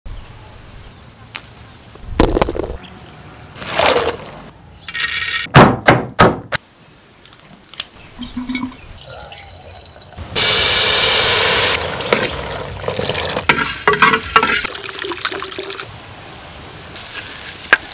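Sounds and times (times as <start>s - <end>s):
loud hissing rush: 10.2s - 11.8s.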